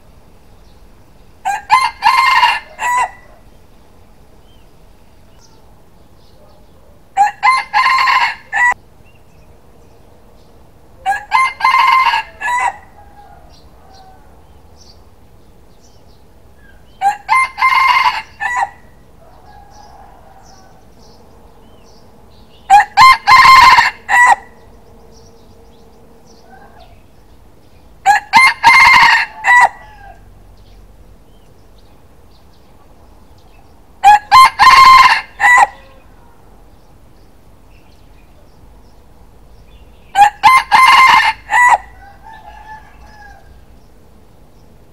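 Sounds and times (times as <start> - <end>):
rooster crowing: 1.4 - 3.5, 7.2 - 8.8, 11.0 - 14.6, 17.0 - 21.0, 22.7 - 24.6, 28.0 - 30.3, 34.0 - 36.2, 40.2 - 43.7.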